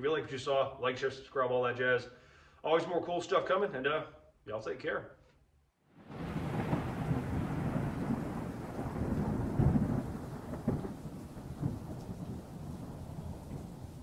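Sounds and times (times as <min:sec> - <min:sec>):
low rolling thunder: 0:06.0 - 0:14.0
steady rain: 0:06.0 - 0:14.0.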